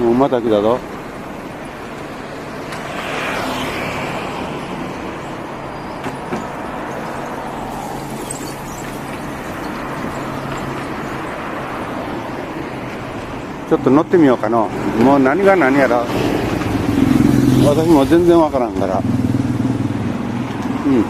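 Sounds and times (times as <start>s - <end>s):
cars driving past: 0.0s - 21.0s
road hum: 0.0s - 21.0s.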